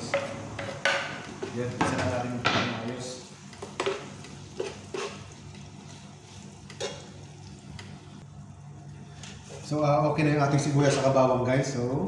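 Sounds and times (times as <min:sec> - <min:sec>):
metal spoon scraping a pan: 0:00.0 - 0:01.5, 0:03.5 - 0:07.3
onions sizzling in hot oil: 0:00.0 - 0:08.3.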